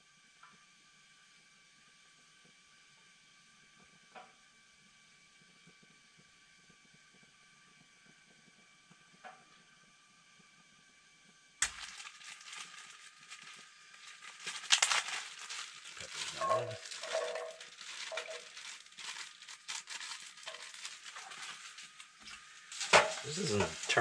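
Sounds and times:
packaging crinkling and rustling: 0:11.6 - 0:24.0.

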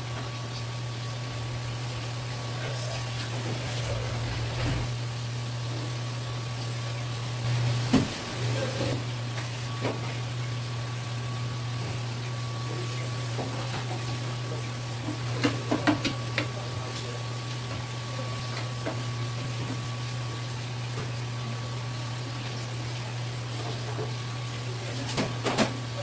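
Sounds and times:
low hum: 0:01.1 - 0:05.9.

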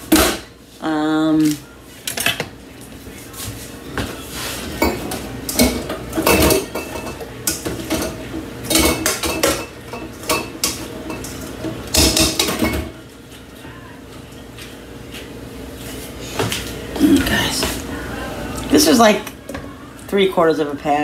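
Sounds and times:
metal pots and utensils clattering: 0:04.6 - 0:13.0.

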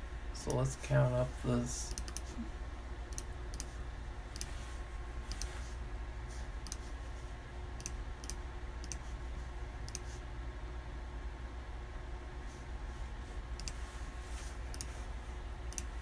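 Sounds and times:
sharp clicks: 0:01.9 - 0:02.3, 0:07.8 - 0:09.0.

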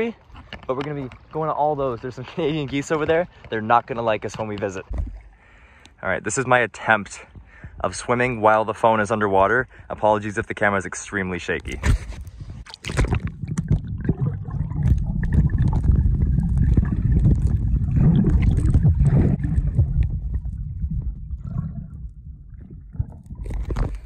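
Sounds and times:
muffled underwater water churning: 0:11.7 - 0:24.0.

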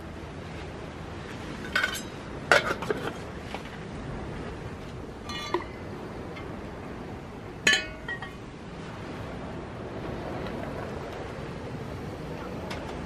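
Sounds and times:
steady low hiss: 0:00.0 - 0:13.0
ceramic clinking against metal pot: 0:01.7 - 0:03.0, 0:05.3 - 0:05.7, 0:07.6 - 0:08.4.

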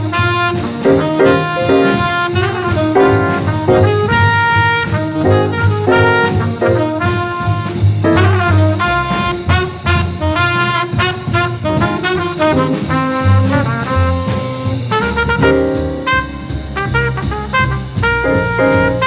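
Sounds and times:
tenor saxophone: 0:00.0 - 0:13.5
bass: 0:00.0 - 0:19.0
drum kit: 0:00.0 - 0:19.0
trumpet: 0:00.0 - 0:19.0.

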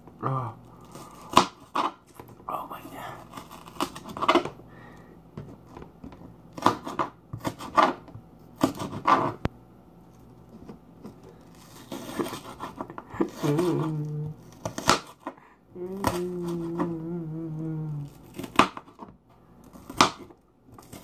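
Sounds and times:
knife cutting on board: 0:06.6 - 0:09.4, 0:11.6 - 0:13.9, 0:14.5 - 0:15.4.

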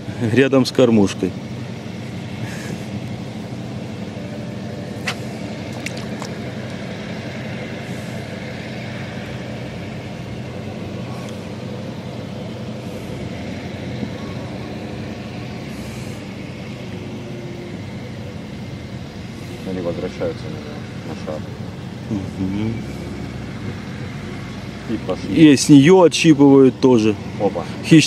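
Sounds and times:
low engine-like hum: 0:00.0 - 0:28.0.

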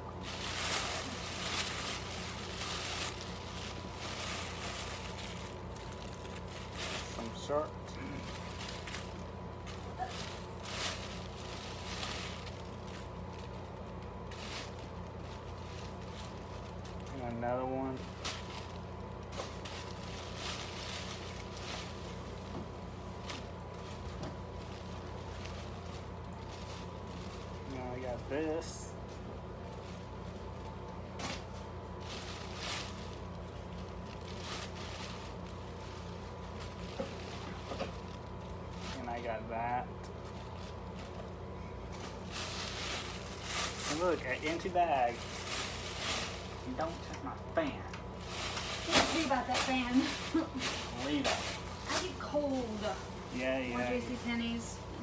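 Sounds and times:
steady low hum: 0:00.0 - 0:55.0
fabric swishing and rustling: 0:00.1 - 0:07.5, 0:41.9 - 0:44.4, 0:48.1 - 0:54.5
clothing rustling: 0:00.1 - 0:17.4.

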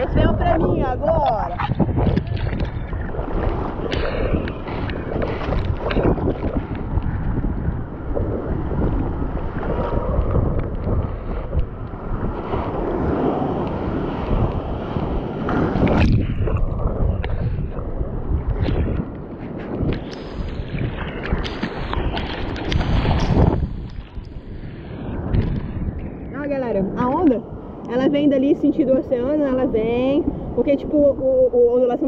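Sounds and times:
sea water sloshing and splashing: 0:00.0 - 0:26.1
wind buffeting microphone: 0:00.0 - 0:32.0.

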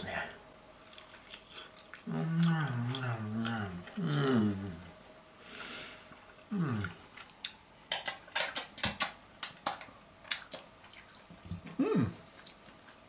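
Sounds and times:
man humming: 0:02.1 - 0:04.9, 0:06.5 - 0:07.0, 0:11.7 - 0:12.2.

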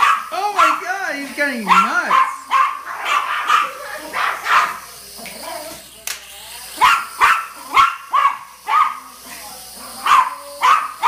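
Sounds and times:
small dog barking: 0:00.0 - 0:00.8, 0:01.6 - 0:04.9, 0:06.8 - 0:09.2, 0:09.9 - 0:11.0.

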